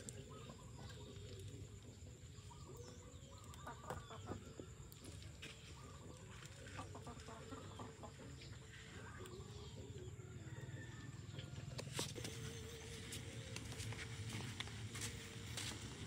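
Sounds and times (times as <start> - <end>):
chickens clucking: 0.0 - 12.6.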